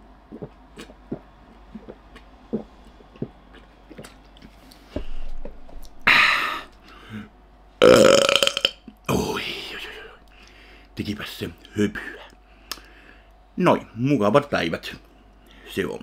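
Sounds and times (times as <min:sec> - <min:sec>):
man gulping milk: 0:00.2 - 0:04.5
swallowing clicks: 0:00.3 - 0:04.5.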